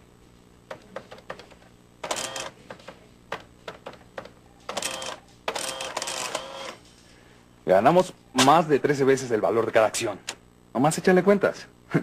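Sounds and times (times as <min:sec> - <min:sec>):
print mechanism buzzing rattle: 0:02.0 - 0:02.5, 0:04.7 - 0:06.8.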